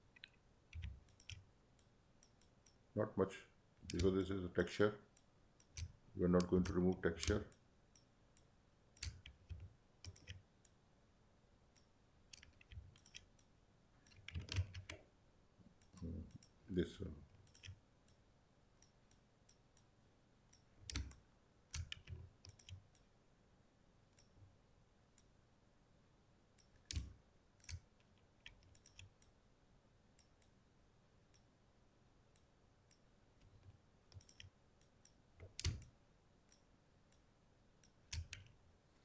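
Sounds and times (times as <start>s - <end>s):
computer mouse clicks: 0.1s - 2.8s, 3.8s - 4.3s, 5.1s - 10.8s, 11.8s - 15.0s, 17.4s - 18.2s, 20.5s - 23.1s, 26.6s - 29.3s, 32.3s - 35.9s, 37.8s - 38.5s.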